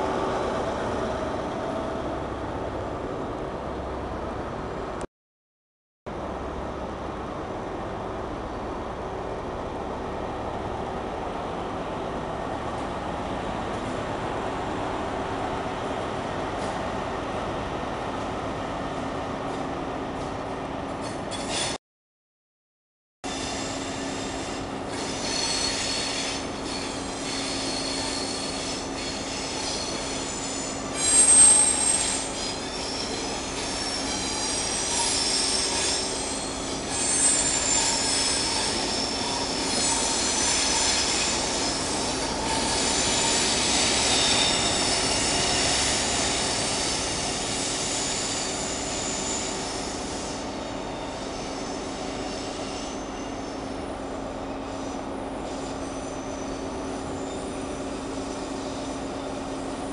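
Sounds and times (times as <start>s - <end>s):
rumble of train wheels: 0.0s - 5.1s, 6.1s - 21.8s, 23.3s - 59.9s
train wheels squealing on track: 21.0s - 21.8s, 23.3s - 59.9s.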